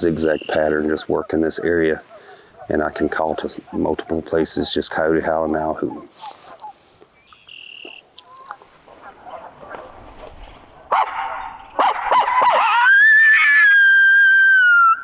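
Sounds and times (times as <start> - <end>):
person imitating coyote howl: 12.4 - 15.0.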